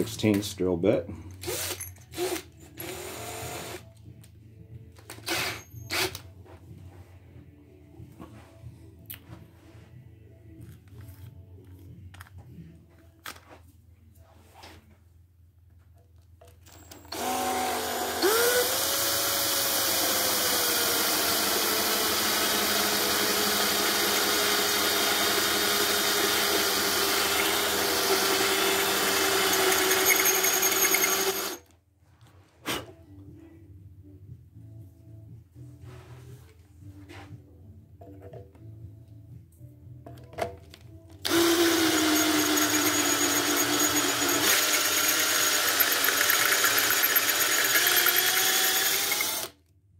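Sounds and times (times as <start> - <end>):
cordless drill boring into metal: 16.8 - 31.6, 41.2 - 49.6.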